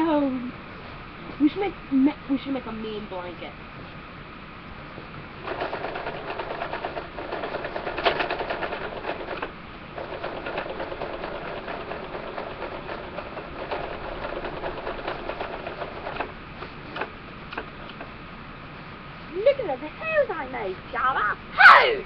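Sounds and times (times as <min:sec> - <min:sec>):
sewing machine stitching: 0:05.4 - 0:18.2.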